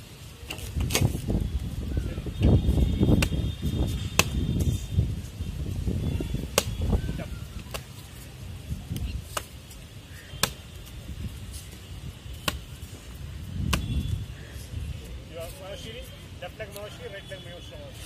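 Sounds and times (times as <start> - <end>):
kicks smacking a paddle: 3.1 - 3.4, 4.1 - 4.5, 6.5 - 6.8, 10.4 - 10.6.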